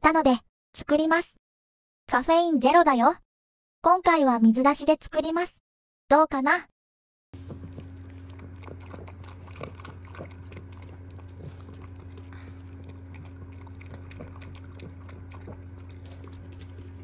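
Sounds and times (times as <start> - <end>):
dog lapping from bowl: 7.4 - 17.0
steady low hum: 7.4 - 17.0.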